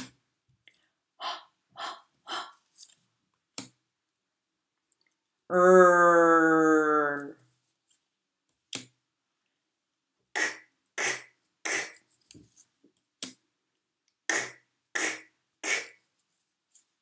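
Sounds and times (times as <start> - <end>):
woman saying letter sounds: 1.2 - 2.6.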